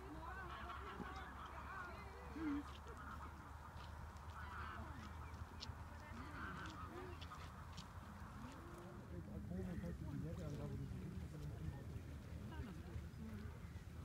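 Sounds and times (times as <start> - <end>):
geese honking: 0.1 - 7.8.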